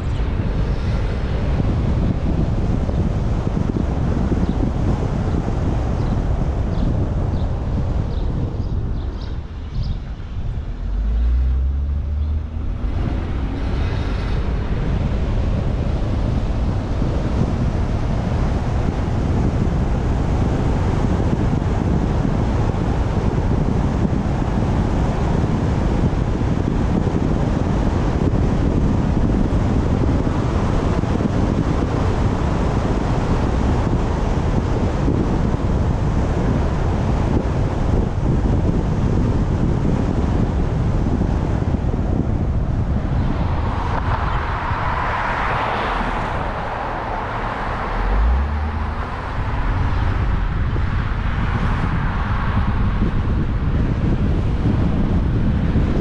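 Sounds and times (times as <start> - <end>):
road noise: 0.0 - 56.0
wind buffeting camera: 0.0 - 56.0
rising whine: 42.9 - 51.9.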